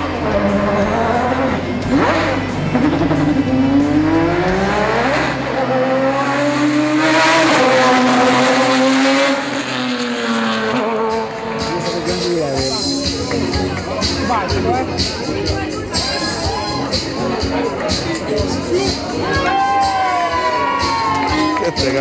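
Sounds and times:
race car engine accelerating: 0:00.0 - 0:13.1.

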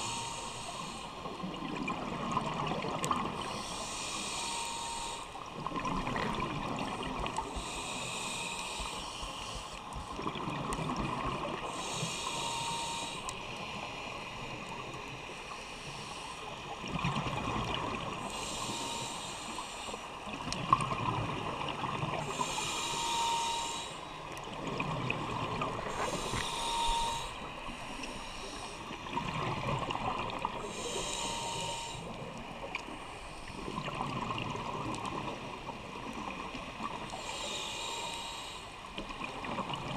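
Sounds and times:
regulator hiss on inhalation: 0:00.0 - 0:01.2, 0:03.4 - 0:05.4, 0:07.5 - 0:09.8, 0:11.7 - 0:13.4, 0:18.2 - 0:20.1, 0:22.2 - 0:24.2, 0:25.9 - 0:28.9, 0:30.6 - 0:32.2, 0:37.2 - 0:38.8.

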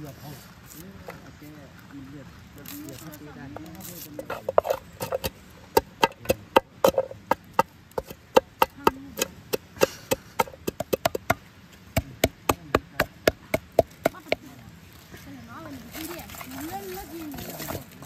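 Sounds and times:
stick pounding in metal pot: 0:04.2 - 0:14.4.

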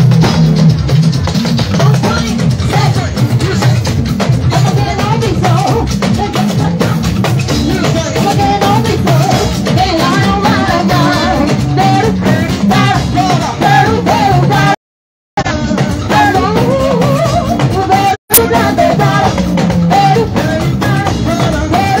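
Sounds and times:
drum kit beat: 0:00.0 - 0:14.8, 0:15.4 - 0:22.0
live band music: 0:00.0 - 0:14.8, 0:15.4 - 0:22.0
woman singing into a microphone: 0:07.8 - 0:14.8, 0:16.1 - 0:22.0.

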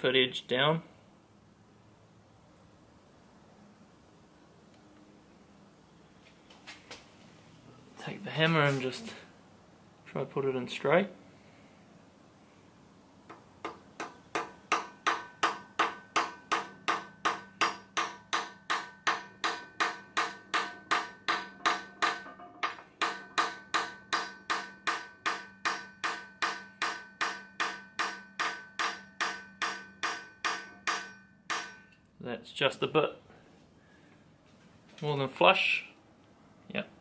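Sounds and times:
hammer tapping metal: 0:13.3 - 0:32.0.

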